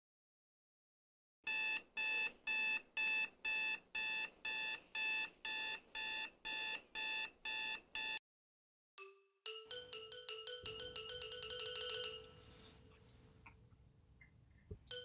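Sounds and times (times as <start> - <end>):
alarm clock beeping: 1.5 - 8.2, 9.0 - 12.5.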